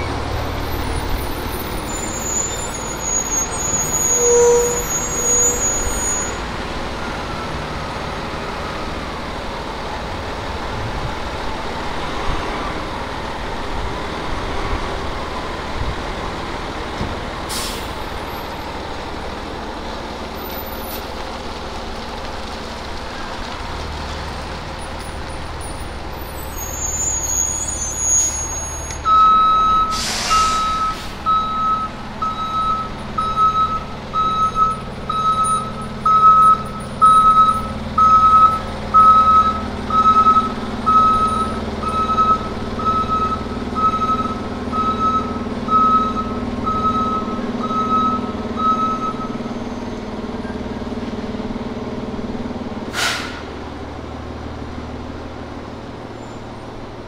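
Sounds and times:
diesel engine running: 0:00.0 - 0:57.0
air brake hiss: 0:17.5 - 0:18.0, 0:29.9 - 0:31.3, 0:52.9 - 0:53.5
reverse alarm beeping: 0:29.0 - 0:49.4.

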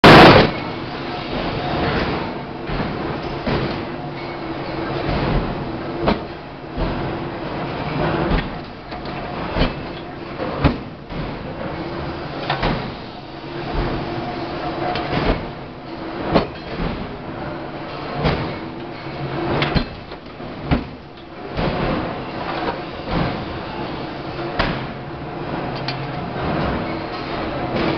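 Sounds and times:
machinery din with low hum: 0:00.0 - 0:27.9.

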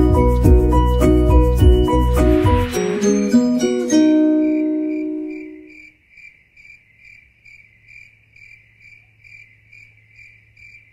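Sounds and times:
background music chord: 0:00.0 - 0:05.7
high chirping: 0:00.0 - 0:05.8.

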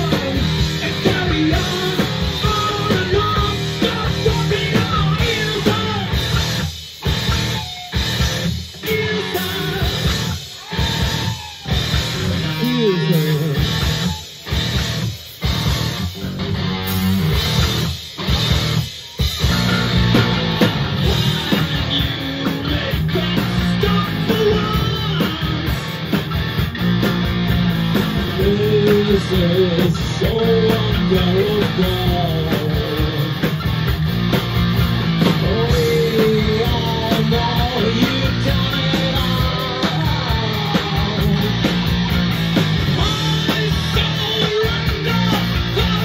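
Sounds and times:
man singing: 0:00.0 - 0:06.4, 0:08.7 - 0:10.4, 0:12.3 - 0:13.8, 0:21.0 - 0:26.0, 0:28.1 - 0:33.5, 0:35.2 - 0:42.0, 0:42.9 - 0:46.0
drums: 0:00.0 - 0:46.0
electric guitars: 0:00.0 - 0:46.0.

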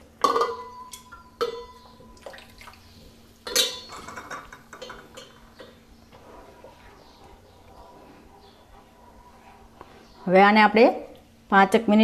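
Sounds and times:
spatula stirring gravy in pan: 0:04.2 - 0:10.3.

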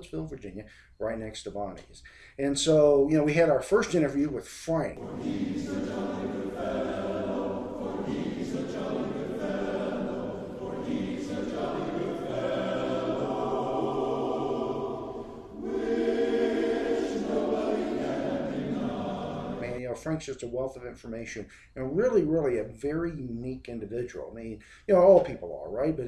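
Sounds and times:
choir singing sustained chords: 0:05.0 - 0:19.8.

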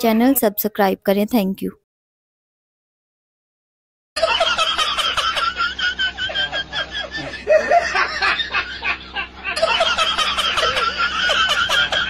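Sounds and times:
high-pitched giggling laughter: 0:04.2 - 0:12.0.

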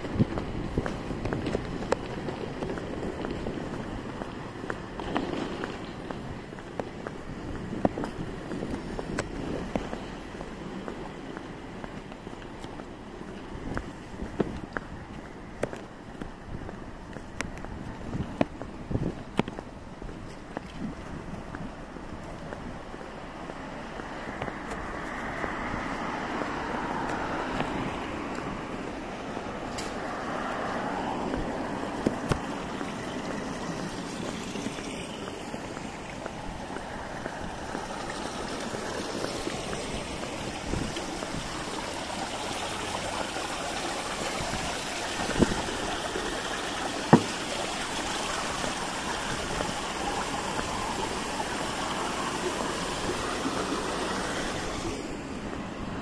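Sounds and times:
water trickling over stone edge: 0:19.5 - 0:55.6
sharp knocks: 0:47.1 - 0:47.4.

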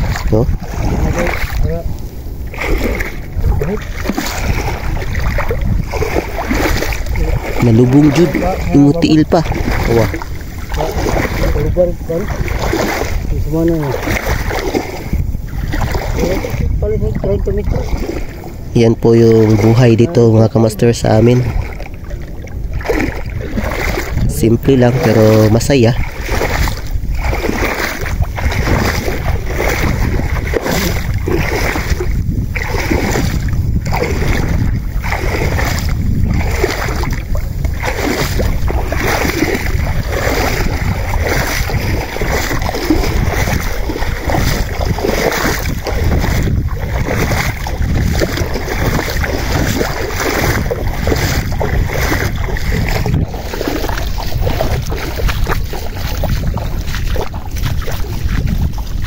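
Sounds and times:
feet wading through water: 0:00.0 - 0:59.0
wind rumble on microphone: 0:00.0 - 0:59.0.

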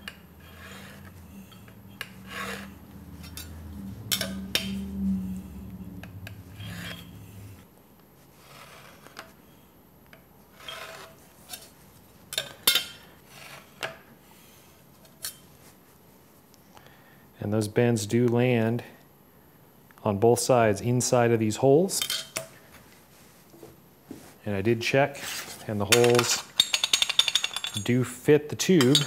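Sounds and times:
scriber scratching sheet metal: 0:00.0 - 0:04.9, 0:06.2 - 0:07.6, 0:08.4 - 0:09.3, 0:10.5 - 0:11.7.

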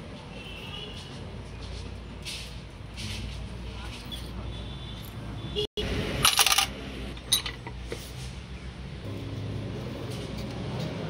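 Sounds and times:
metal parts clinking: 0:06.2 - 0:08.0.

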